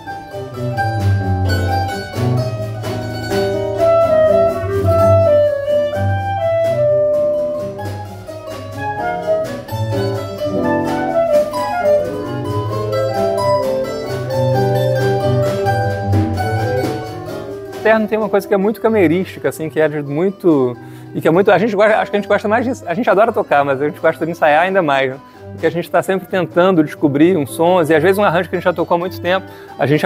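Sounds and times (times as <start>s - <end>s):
clarinet melody: 0.0s - 17.8s
acoustic guitar with walking bass: 0.0s - 30.0s
bandolim: 0.0s - 30.0s.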